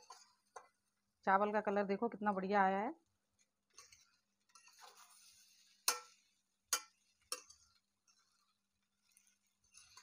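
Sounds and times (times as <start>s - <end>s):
spoon scraping a pan: 0.0s - 1.0s, 3.3s - 10.0s
spoon clinking on metal pan: 5.8s - 7.8s.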